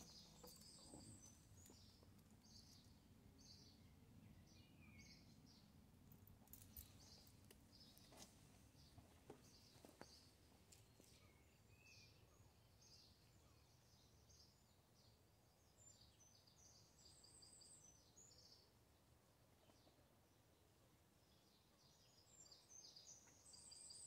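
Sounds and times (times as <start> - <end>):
birds chirping: 0.0 - 18.7.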